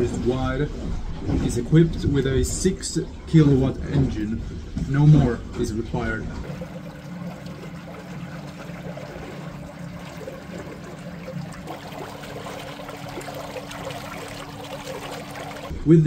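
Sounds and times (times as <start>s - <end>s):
steady low hum: 0.0s - 16.0s
water rushing and churning: 6.4s - 15.8s.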